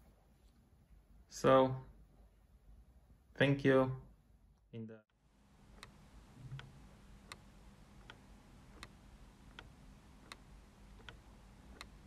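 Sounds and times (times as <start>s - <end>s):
mechanical clock ticking: 7.3s - 12.0s.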